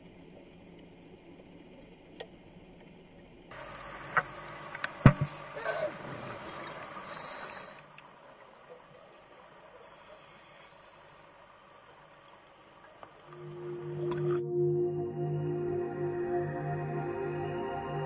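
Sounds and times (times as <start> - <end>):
underwater hiss: 3.6 - 8.0, 9.6 - 11.8
sharp knocks: 5.0 - 5.4.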